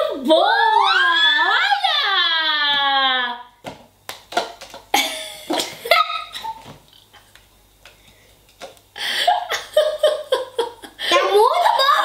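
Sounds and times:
girl and woman laughing and squealing: 0:05.8 - 0:06.6, 0:09.3 - 0:12.0.

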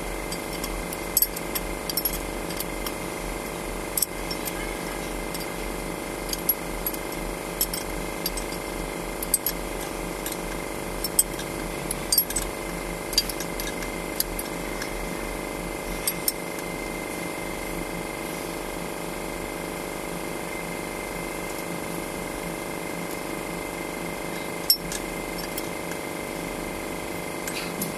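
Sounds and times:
steady hum: 0:00.0 - 0:27.9
metallic tool clicks and clinks: 0:00.3 - 0:03.0, 0:03.9 - 0:04.6, 0:05.3 - 0:05.6, 0:06.2 - 0:15.0, 0:24.7 - 0:25.7.

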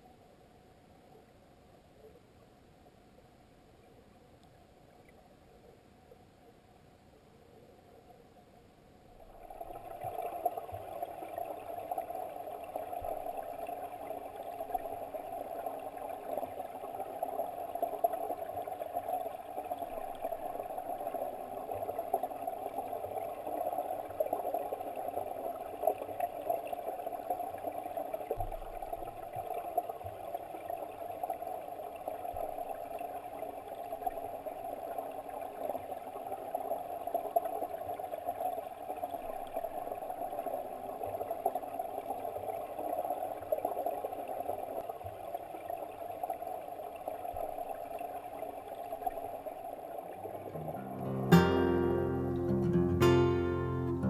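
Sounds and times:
muffled underwater stream gurgle: 0:09.1 - 0:54.0.

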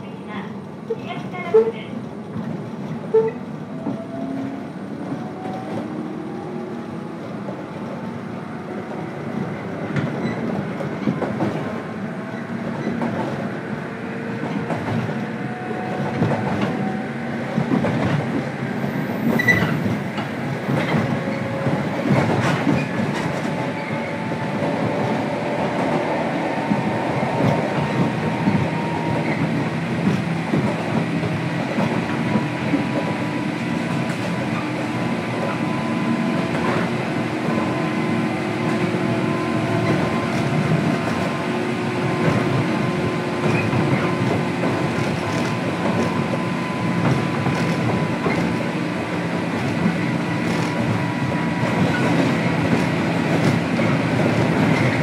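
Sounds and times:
train rumble: 0:00.0 - 0:55.0.

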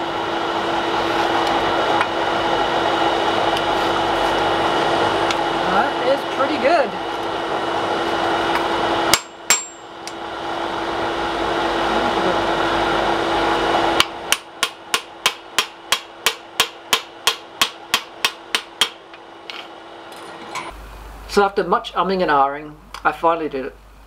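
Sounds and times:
hammer striking metal on anvil: 0:09.1 - 0:09.9, 0:14.0 - 0:19.2.

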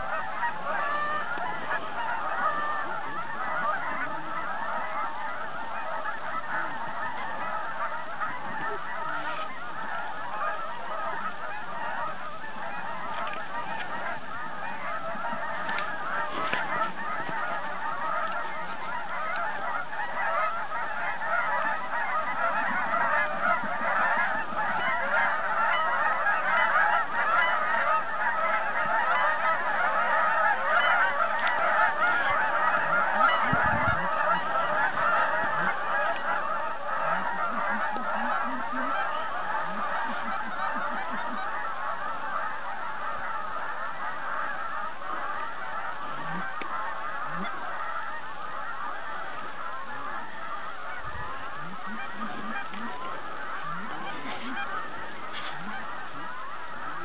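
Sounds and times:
geese honking: 0:00.0 - 0:57.0.

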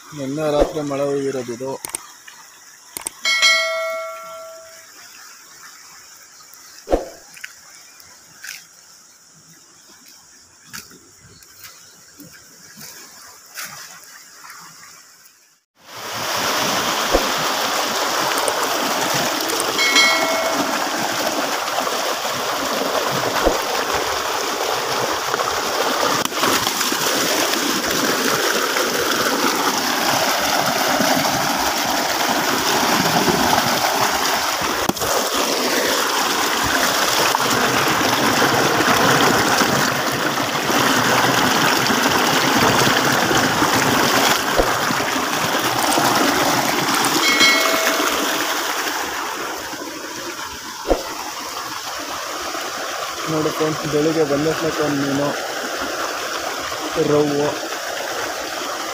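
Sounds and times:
stream rushing over rocks: 0:03.2 - 0:04.8, 0:15.8 - 0:58.9
single thump: 0:06.9 - 0:07.2, 0:50.9 - 0:51.2.

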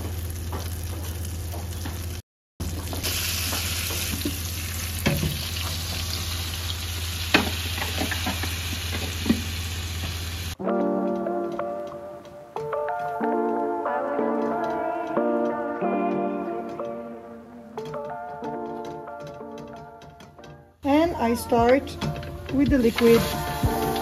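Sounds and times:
butter sizzling in a frying pan: 0:03.0 - 0:10.6.

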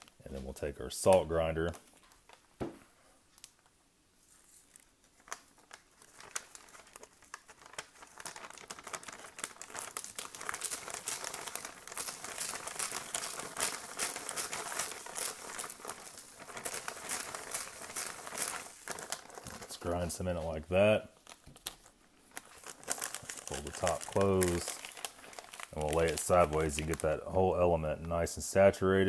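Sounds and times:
plastic bag crinkling: 0:03.3 - 0:28.6.

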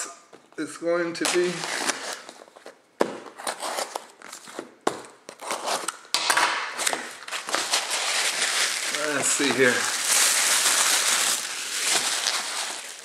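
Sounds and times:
packing material crinkling: 0:06.8 - 0:13.0.

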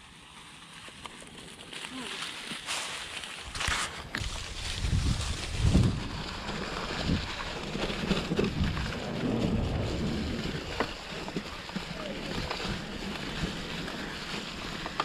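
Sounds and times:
bike tyres crunching leaves: 0:00.0 - 0:15.0
bike clicks and rattles: 0:00.1 - 0:15.0
wind buffeting microphone: 0:04.1 - 0:15.0.

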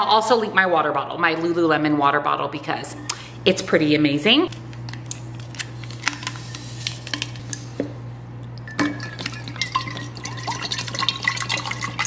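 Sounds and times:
water pouring into bottle: 0:08.8 - 0:12.0.

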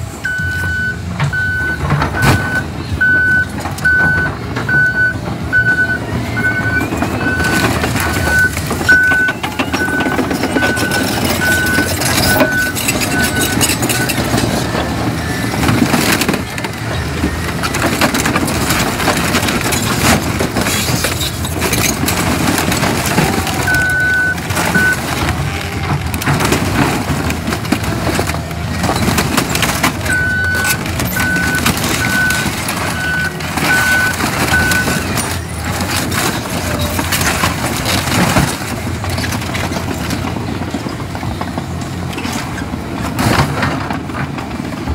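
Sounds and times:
bulldozer diesel engine labouring: 0:00.0 - 0:44.9
reversing alarm beeping: 0:00.2 - 0:16.2, 0:23.6 - 0:25.2, 0:30.0 - 0:35.3
metal and glass crunching: 0:07.1 - 0:40.4.

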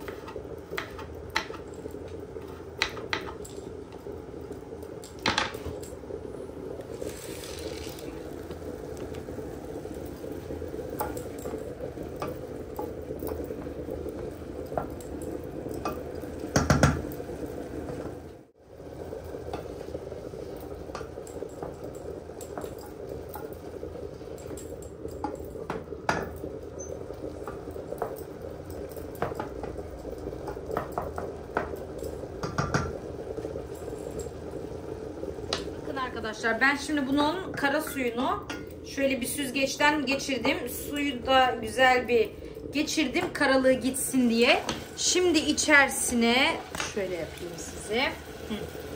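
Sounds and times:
mushrooms sizzling: 0:00.0 - 0:48.9.

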